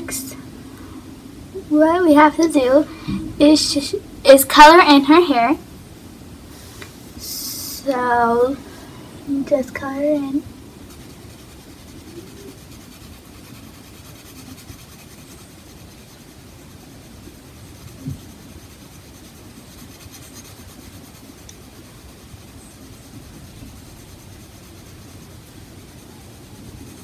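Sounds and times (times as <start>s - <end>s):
pencil scratching on paper: 10.8s - 16.3s, 17.6s - 27.0s.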